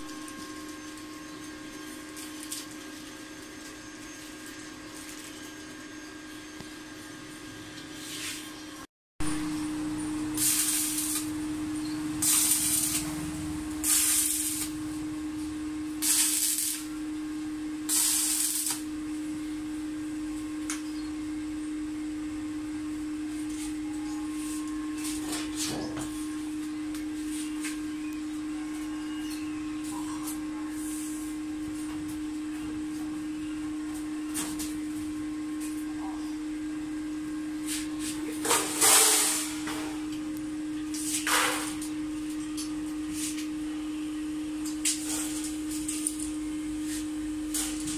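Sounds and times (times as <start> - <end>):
steady hum: 0.0 - 47.9
harsh metalworking noise bursts: 10.2 - 14.9, 15.9 - 17.0, 17.8 - 18.9.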